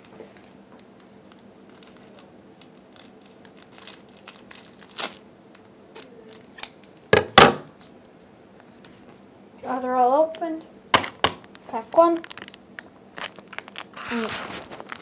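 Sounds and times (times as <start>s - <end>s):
foil wrappers crinkling and tearing: 0.0s - 5.2s, 11.0s - 15.0s.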